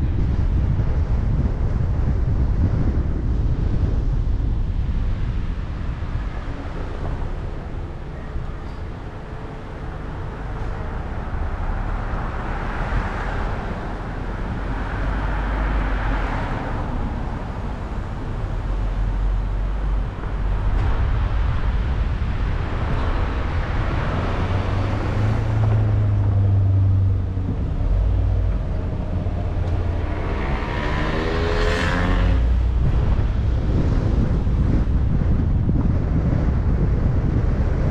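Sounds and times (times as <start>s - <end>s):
car engine and road noise: 0.0s - 37.9s
passing traffic: 0.0s - 37.9s
vehicle accelerating: 9.8s - 37.9s.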